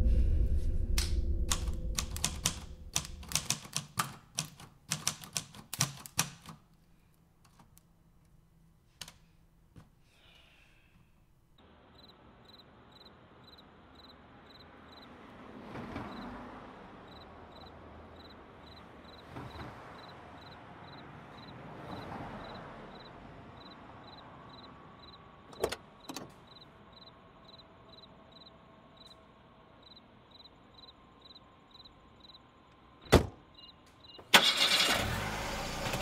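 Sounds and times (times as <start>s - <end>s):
low rumble: 0.0s - 3.3s
typewriter keys clacking: 1.5s - 6.6s.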